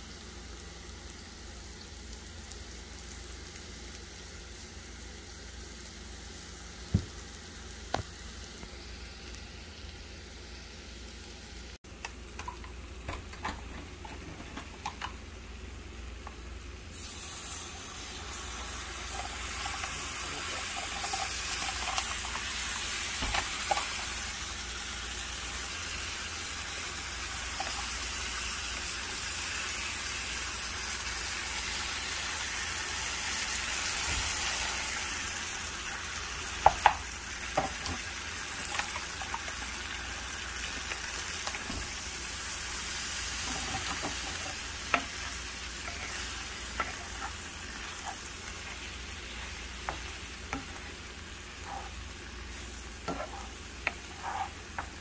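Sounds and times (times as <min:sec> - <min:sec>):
onions sizzling in oil: 0:00.0 - 0:55.0
spoon stirring in pan: 0:43.0 - 0:55.0.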